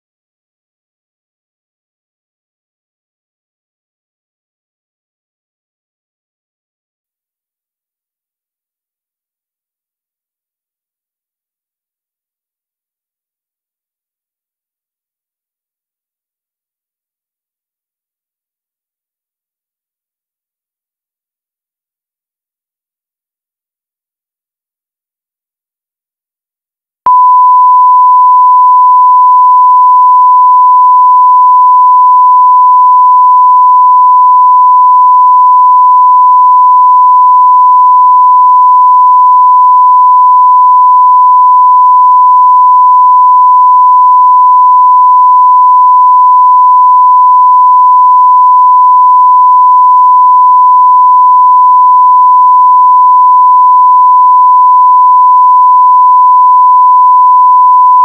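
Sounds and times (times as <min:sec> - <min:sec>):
steady sine-wave reference tone: 0:27.1 - 0:31.2.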